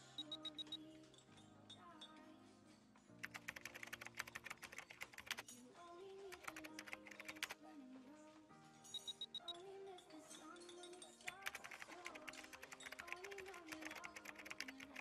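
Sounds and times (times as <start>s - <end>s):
laptop keyboard typing: 0.0s - 0.8s, 3.2s - 5.5s, 6.3s - 7.6s, 11.2s - 15.0s
soft background music: 0.0s - 15.0s.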